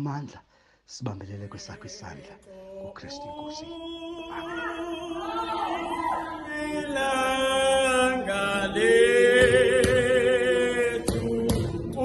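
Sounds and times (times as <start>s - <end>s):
man singing: 1.1s - 5.4s, 6.3s - 12.0s
voices singing a hymn: 1.5s - 12.0s.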